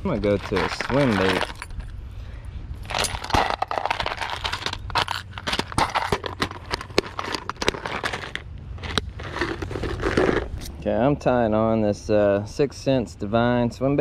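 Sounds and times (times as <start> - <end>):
rustling and crinkling: 0.0 - 1.9, 2.8 - 10.7.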